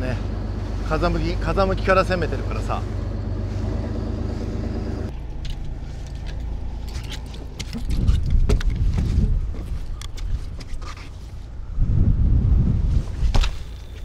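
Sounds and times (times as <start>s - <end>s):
boat engine humming: 0.0s - 7.6s.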